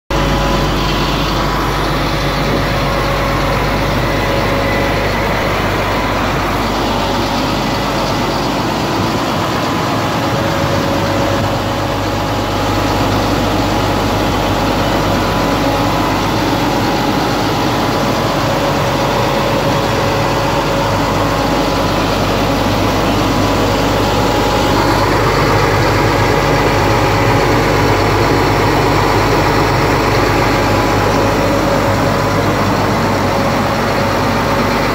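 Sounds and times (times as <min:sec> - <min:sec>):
tow truck engine idling: 0:00.1 - 0:34.9.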